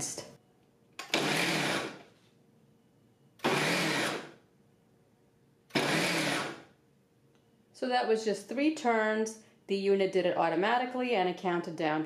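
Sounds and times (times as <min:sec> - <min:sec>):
blender motor pulsing: 0:01.0 - 0:02.0, 0:03.4 - 0:04.4, 0:05.7 - 0:06.7.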